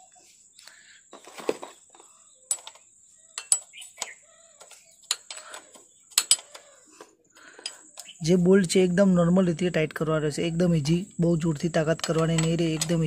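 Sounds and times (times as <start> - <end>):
metal spanners clinking: 1.1 - 8.3, 11.8 - 13.0.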